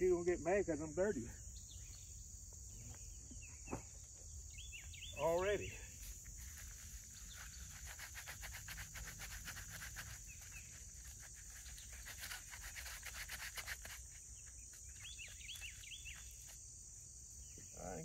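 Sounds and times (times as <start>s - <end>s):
high insect drone: 0.0s - 18.0s
dry soil and grass crackling: 1.7s - 17.2s.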